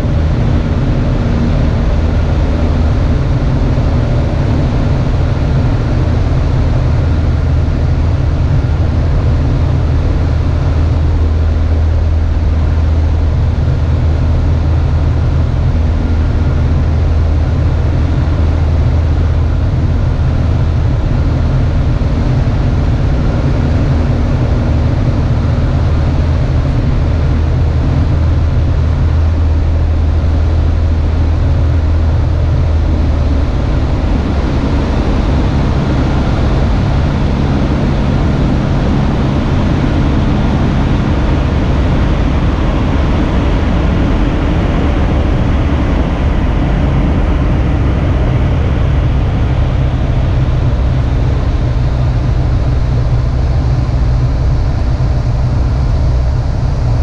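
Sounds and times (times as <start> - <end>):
airflow noise: 0.0 - 57.0
propeller plane engine droning: 0.0 - 57.0.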